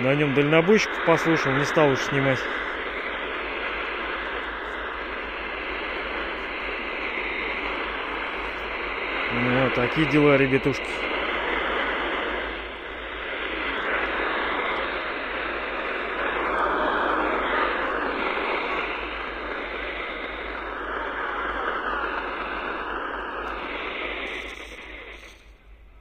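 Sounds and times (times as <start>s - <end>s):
radio static hiss: 0.0s - 26.0s
faint wavering whistles: 11.4s - 26.0s.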